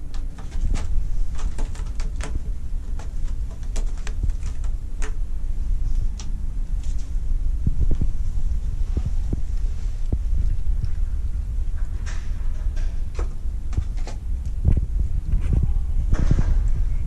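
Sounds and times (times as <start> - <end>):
cat claws clicking on scratching post: 0.0 - 5.2
low rumble: 4.1 - 17.0.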